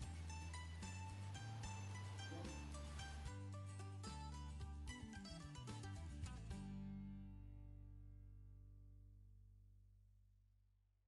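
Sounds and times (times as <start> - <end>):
quiet background music: 0.0 - 8.3.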